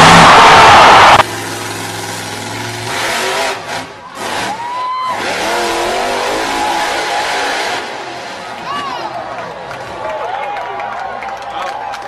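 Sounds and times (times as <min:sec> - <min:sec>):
spectators shouting and cheering: 0:00.0 - 0:01.3, 0:03.8 - 0:12.0
truck engine revving: 0:00.0 - 0:08.7.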